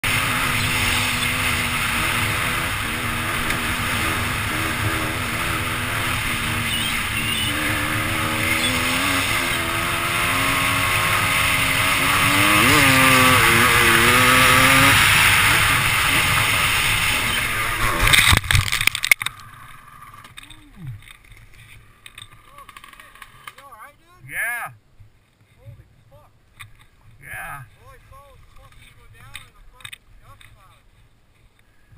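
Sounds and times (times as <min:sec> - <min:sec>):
dirt bike engine running: 0:00.0 - 0:19.0
steady rushing noise: 0:00.0 - 0:19.2.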